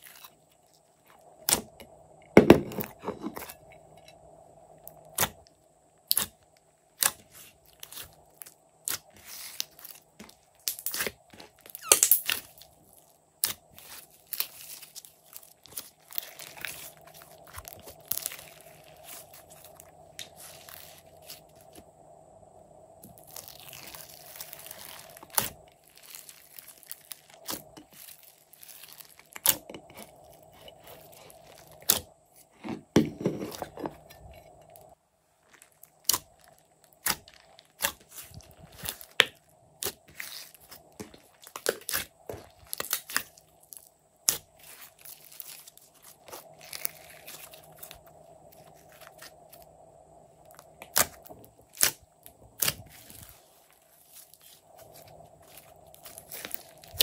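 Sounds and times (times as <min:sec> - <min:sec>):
hands kneading sticky slime: 0:07.0 - 0:21.8, 0:23.0 - 0:32.0, 0:35.5 - 0:49.7, 0:50.5 - 0:57.0.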